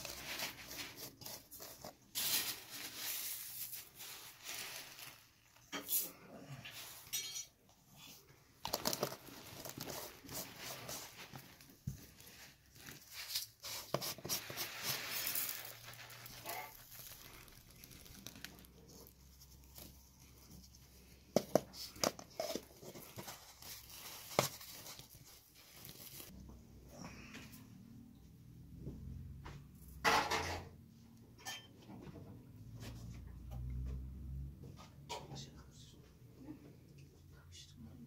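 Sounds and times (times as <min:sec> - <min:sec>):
flour pouring hiss: 0:14.2 - 0:18.2.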